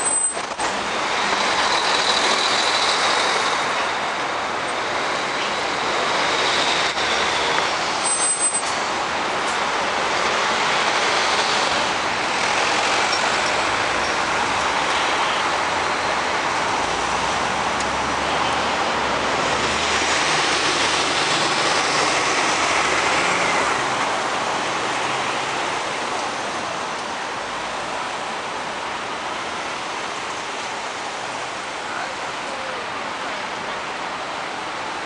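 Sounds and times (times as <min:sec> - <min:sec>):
buses and cars passing: 0:00.0 - 0:35.0.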